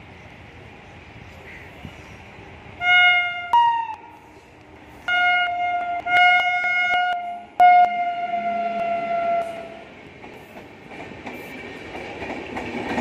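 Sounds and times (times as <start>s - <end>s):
locomotive horn blasts: 2.8s - 4.0s, 5.1s - 9.8s.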